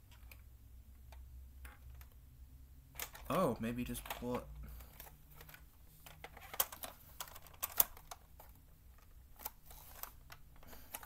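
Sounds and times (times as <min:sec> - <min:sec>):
plastic toy clicks and knocks: 0:02.9 - 0:11.0.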